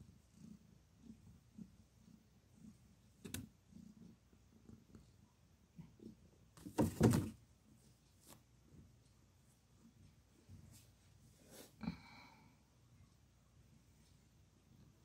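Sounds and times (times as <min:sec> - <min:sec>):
cat purring: 0:00.0 - 0:06.5
rustling and thumps on cardboard box: 0:06.6 - 0:07.4.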